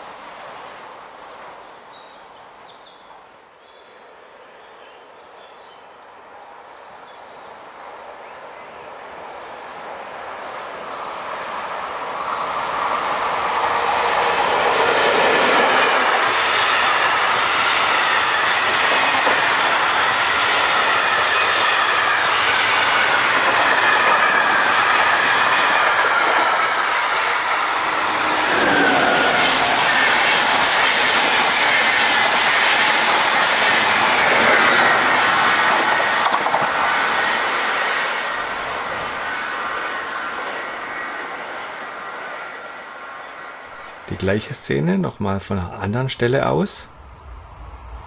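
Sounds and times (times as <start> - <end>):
electric train passing: 7.6 - 48.0
diesel locomotive: 9.0 - 48.0
wheels clattering over rails: 14.6 - 22.2.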